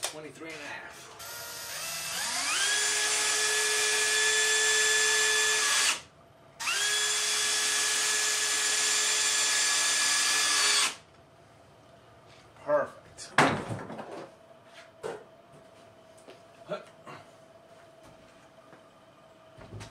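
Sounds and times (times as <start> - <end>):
cordless driver whining: 1.2 - 11.0.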